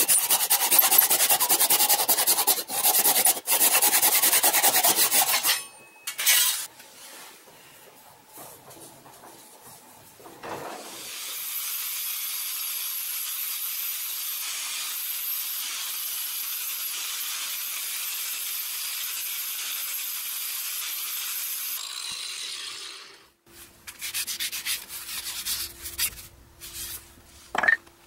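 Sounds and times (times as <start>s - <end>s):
angle grinder sanding wood: 0.0s - 5.5s.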